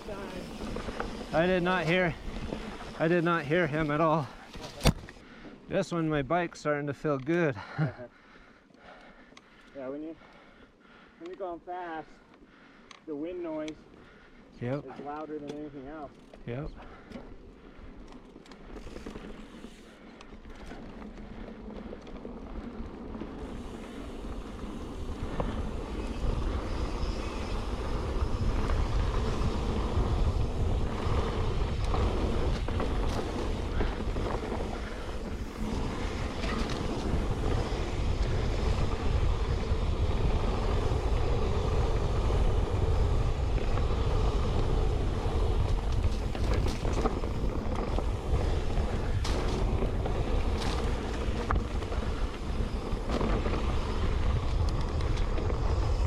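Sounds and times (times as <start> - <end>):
wind rumbling on microphone: 22.4 - 56.0.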